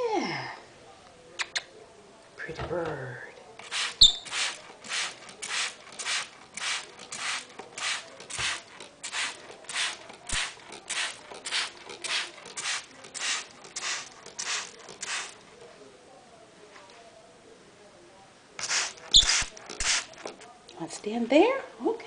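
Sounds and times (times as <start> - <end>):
spray bottle squirting: 3.6 - 15.4, 18.6 - 20.5.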